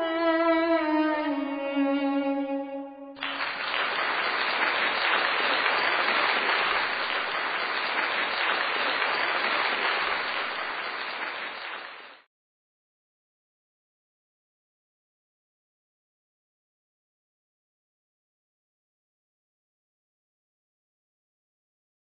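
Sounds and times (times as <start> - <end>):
violin-led music: 0.0 - 3.4
audience applause: 3.2 - 12.2.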